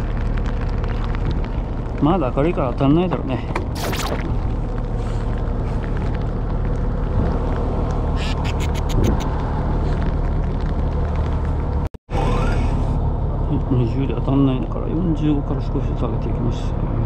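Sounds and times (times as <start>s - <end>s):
boat engine humming: 4.4s - 16.6s
sharp clicks: 7.9s - 9.4s.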